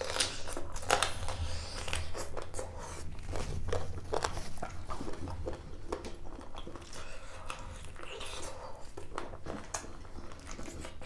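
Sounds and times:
person chewing crunchy food: 0:00.0 - 0:11.0.

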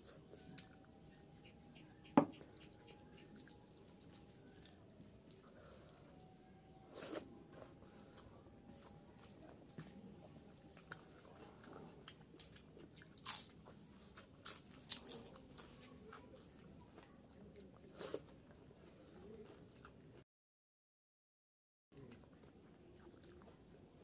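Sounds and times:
chewing crisp wafer crunches: 0:08.7 - 0:20.1, 0:22.0 - 0:23.8.

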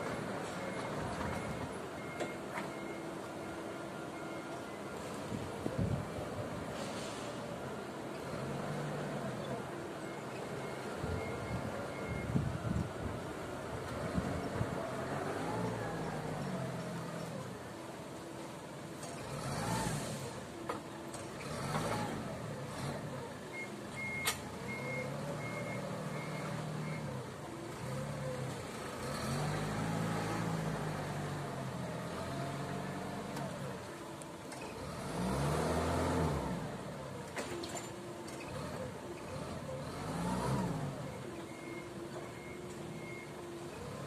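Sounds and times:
reverse alarm beeps: 0:00.6 - 0:05.1, 0:10.1 - 0:12.5, 0:23.5 - 0:27.2, 0:41.1 - 0:43.4
forklift engine revving: 0:19.1 - 0:20.6, 0:21.3 - 0:33.9, 0:34.6 - 0:44.0.

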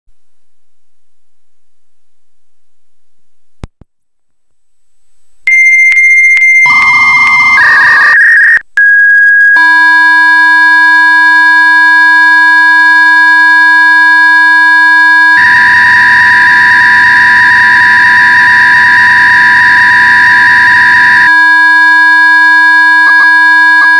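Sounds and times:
steady high modem answer tone: 0:05.5 - 0:23.9
warbling modem tones: 0:05.5 - 0:23.9.

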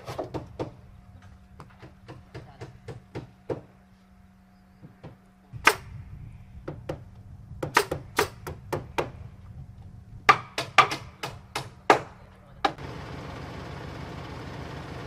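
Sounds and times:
hammer knocking on wood: 0:00.1 - 0:00.8, 0:01.6 - 0:03.7, 0:04.8 - 0:05.2
steady low hum: 0:00.6 - 0:14.8.

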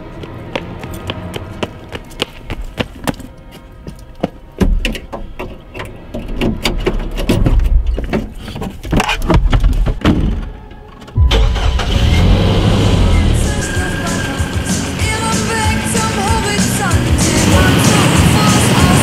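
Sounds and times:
running footsteps on pavement: 0:00.0 - 0:05.0.

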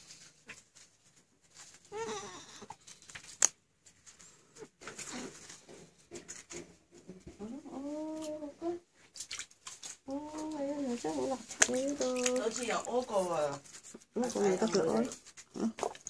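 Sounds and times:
rustling of baby clothes: 0:00.0 - 0:09.2, 0:09.9 - 0:15.8
baby whimpering cry: 0:01.9 - 0:02.7.

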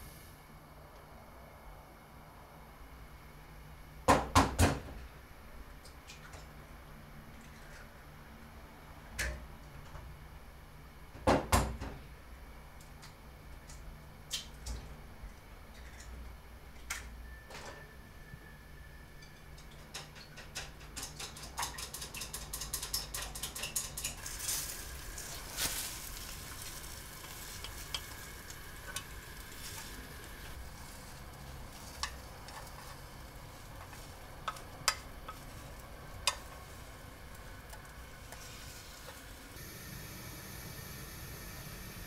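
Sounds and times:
chopsticks stirring in a bowl: 0:21.0 - 0:39.4
egg sizzling in a pan: 0:24.0 - 0:42.0
chopsticks clicking against pan: 0:33.8 - 0:35.5, 0:36.2 - 0:36.6.

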